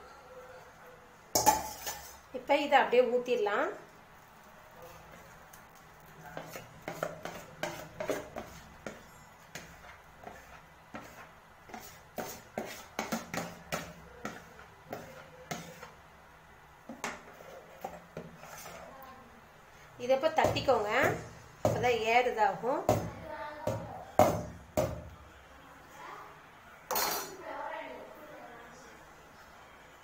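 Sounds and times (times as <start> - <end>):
spoon scraping plastic bowl: 6.3 - 16.0, 16.9 - 19.0.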